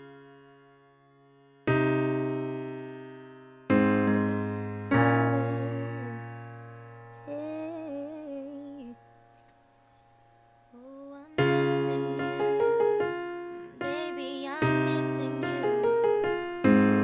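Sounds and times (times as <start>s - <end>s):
electric piano chords: 0.0s - 17.0s.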